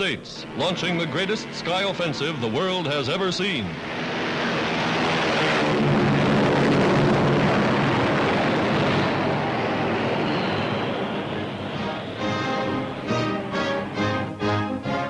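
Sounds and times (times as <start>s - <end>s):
propeller aircraft engine drone: 0.0s - 15.0s.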